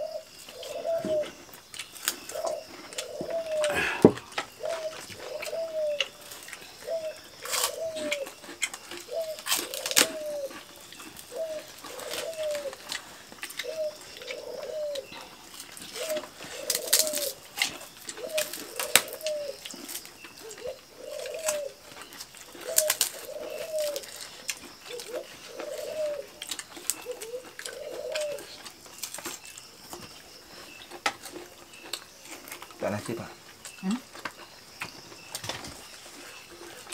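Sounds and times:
dove cooing: 0.0 - 13.0, 13.6 - 28.7
people eating with hands: 0.0 - 36.9.

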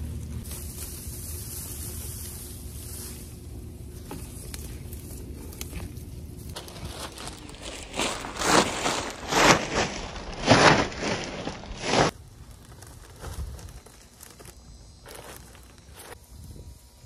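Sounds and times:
plastic bag crinkling swishes: 6.6 - 12.1.

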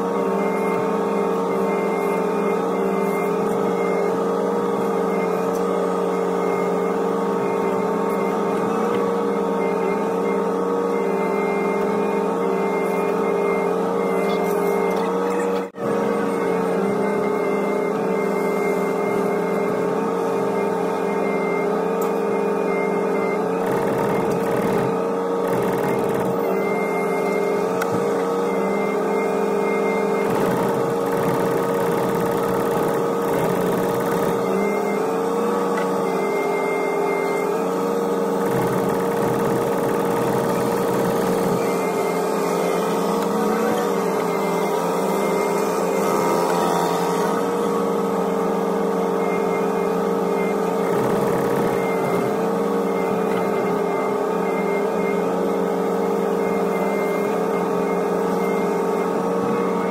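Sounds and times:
hydraulic whine: 0.0 - 59.9
diesel engine running: 22.7 - 46.2, 47.3 - 54.5.

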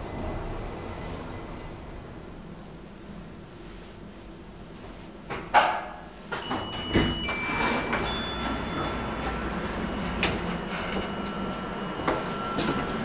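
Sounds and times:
lift door motor whine: 6.3 - 13.0.

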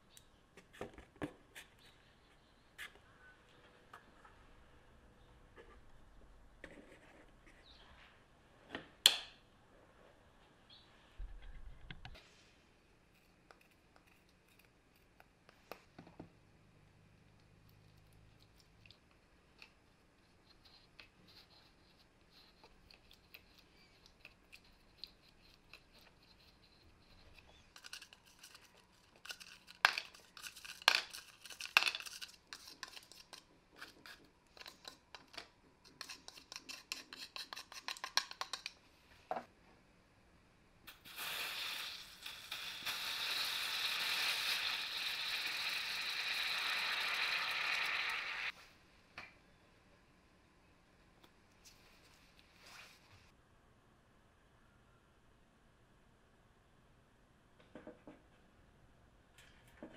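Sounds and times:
metal spatula scraping plastic jar: 35.9 - 38.7.

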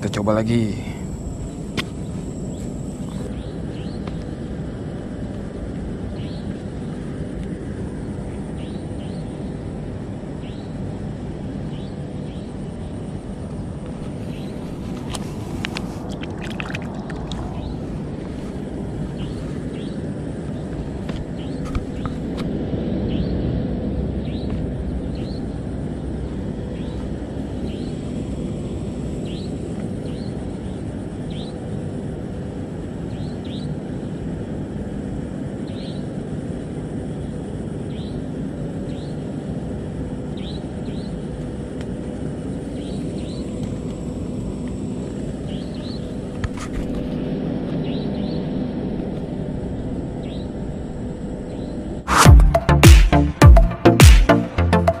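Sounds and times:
steady low rumble: 0.0 - 33.2.

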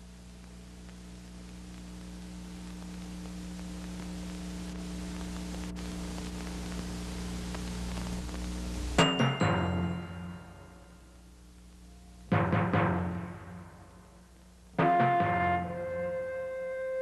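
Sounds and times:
low hum with hiss: 0.0 - 17.0
timpani stroke: 12.3 - 14.1, 14.8 - 16.2
orchestral music: 14.8 - 16.4.

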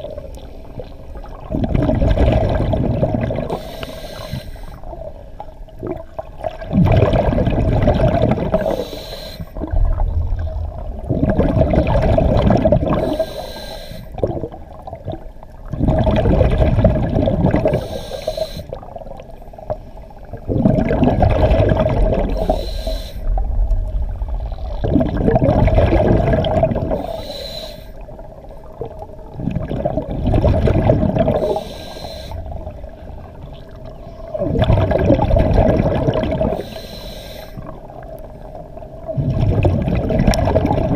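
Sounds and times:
rush of exhaled bubbles: 0.8 - 5.1, 5.8 - 8.9, 9.5 - 13.4, 14.1 - 19.3, 20.1 - 27.2, 28.0 - 36.8, 37.6 - 40.9
diver breathing through regulator: 3.4 - 4.9, 8.5 - 9.7, 12.9 - 14.2, 17.6 - 18.8, 22.2 - 23.4, 26.8 - 28.0, 31.2 - 32.8, 36.4 - 37.8.

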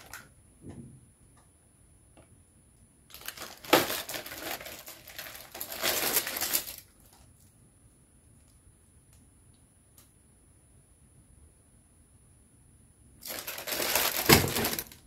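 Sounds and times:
plastic wrapping crinkling: 0.0 - 0.3, 3.1 - 7.5, 13.2 - 15.0.

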